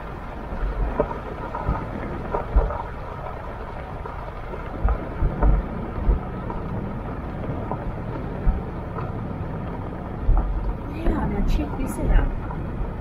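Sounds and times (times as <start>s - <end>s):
vehicle road noise: 0.0s - 13.0s
wind buffeting microphone: 0.0s - 13.0s.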